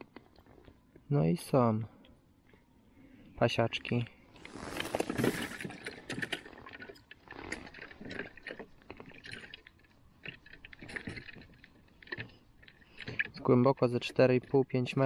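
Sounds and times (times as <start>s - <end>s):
clothing rustling: 4.4s - 6.5s.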